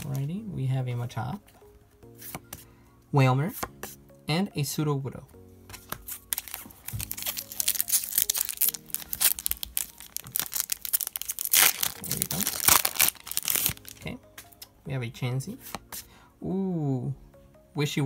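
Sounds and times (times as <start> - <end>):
foil wrapper crackling: 6.2 - 14.0
foil wrapper ripping: 6.2 - 14.0.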